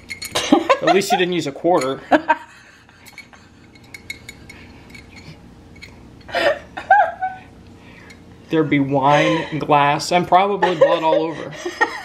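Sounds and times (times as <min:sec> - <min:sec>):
metal clinks on glass bottle: 0:00.0 - 0:00.4
person's voice: 0:08.5 - 0:11.7.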